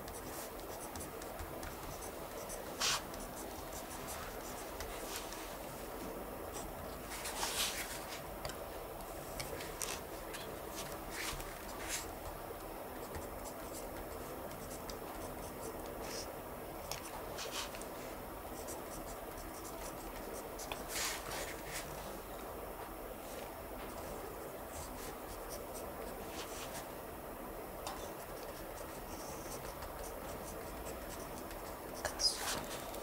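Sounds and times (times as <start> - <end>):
pen scratching on paper: 0.0 - 5.4, 28.2 - 32.8
faint room hiss: 0.0 - 33.0.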